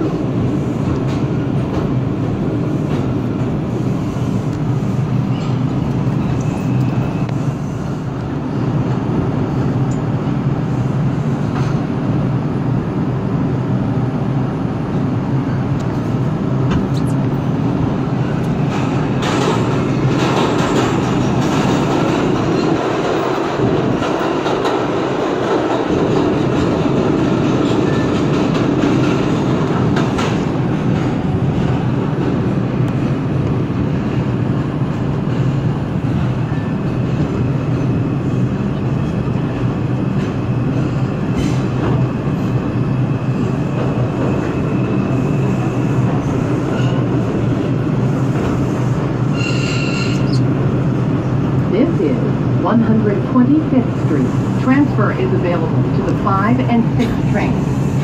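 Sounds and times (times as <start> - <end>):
train wheels rumbling on rails: 0.0 - 58.0
faint high wheel squeal: 49.3 - 50.4.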